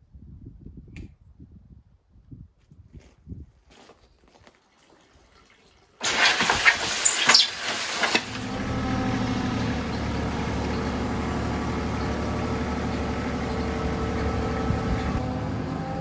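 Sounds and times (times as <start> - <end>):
water splashing: 4.7 - 8.5
diesel engine idling: 8.2 - 16.0.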